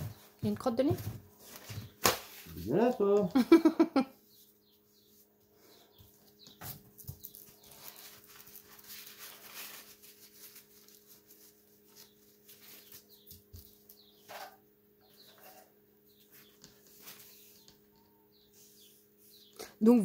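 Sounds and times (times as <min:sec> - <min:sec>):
paper towel rustling: 0:07.7 - 0:13.1.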